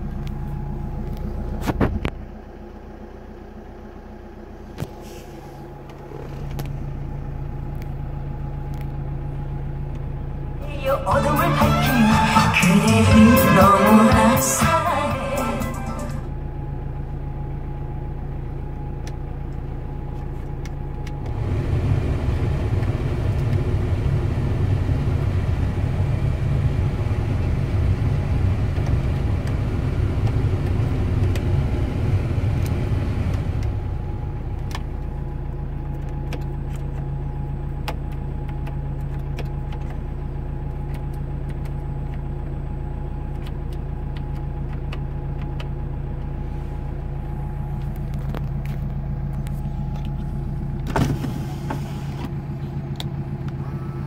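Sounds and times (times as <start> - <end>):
van engine idling: 0.0 - 54.0.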